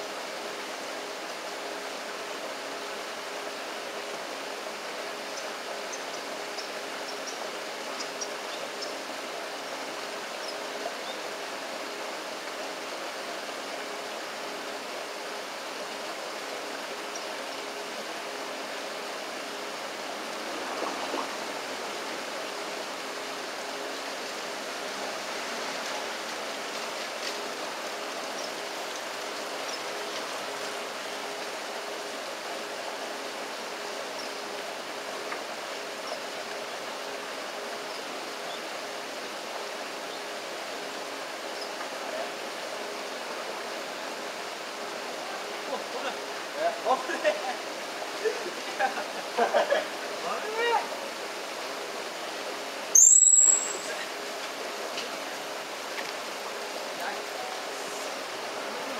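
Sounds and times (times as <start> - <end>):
flowing river water: 0.0 - 58.9
faint high chirps: 53.0 - 54.0.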